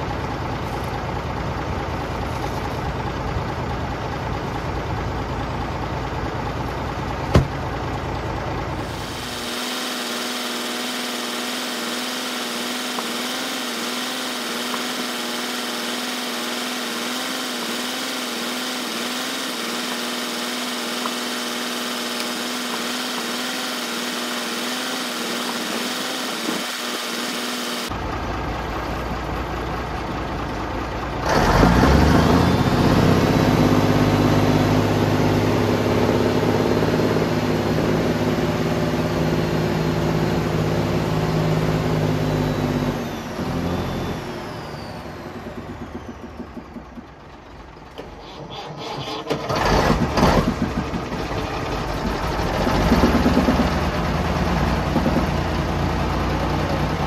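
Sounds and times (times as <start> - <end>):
diesel truck engine idling: 0.0 - 9.4, 27.9 - 38.7, 43.1 - 49.0, 49.8 - 57.0
sharp knock: 7.3 - 7.6.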